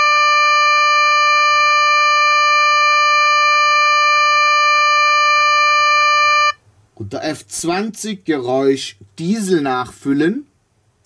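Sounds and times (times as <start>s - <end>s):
steady warning tone from loudspeaker: 0.0s - 6.6s.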